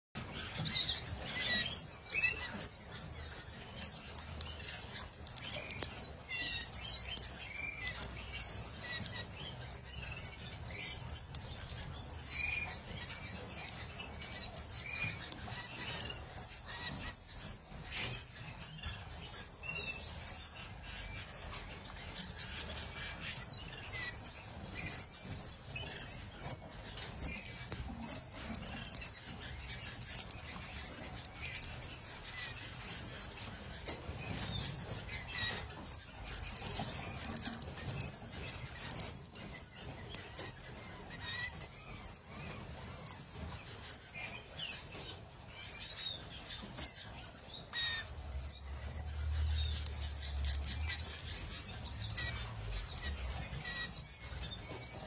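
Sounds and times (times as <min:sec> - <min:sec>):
canaries chirping: 0:00.1 - 0:55.0.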